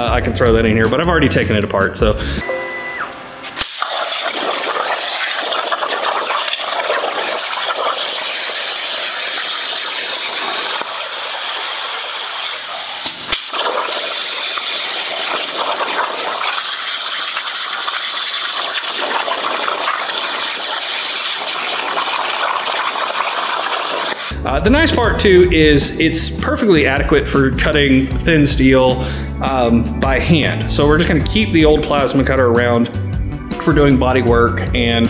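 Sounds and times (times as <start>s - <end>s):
plasma torch hissing: 3.6s - 24.3s.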